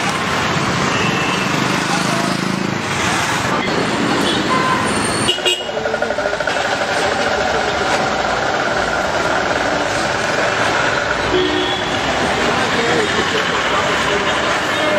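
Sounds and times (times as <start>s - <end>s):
vehicle engines running: 0.0s - 14.9s.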